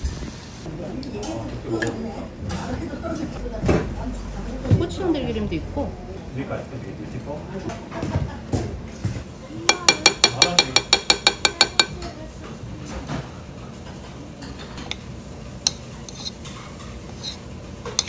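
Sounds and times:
metal spoon tapping ceramic bowl: 9.7 - 12.0
utensils clinking on bowl: 9.7 - 12.1.

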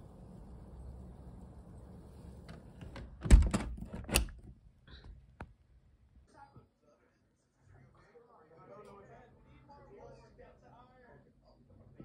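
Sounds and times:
low steady rumble: 0.0 - 3.6.

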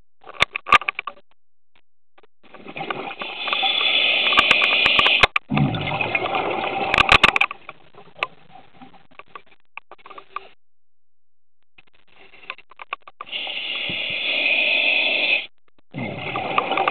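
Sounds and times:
low bubbling rumble: 5.5 - 6.9
underwater regulator breathing: 13.2 - 16.6.

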